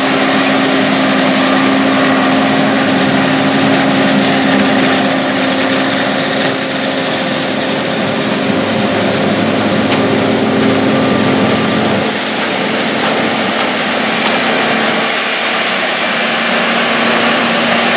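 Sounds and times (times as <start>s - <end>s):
machinery hum: 0.0s - 17.9s
tractor engine drone: 0.0s - 17.9s.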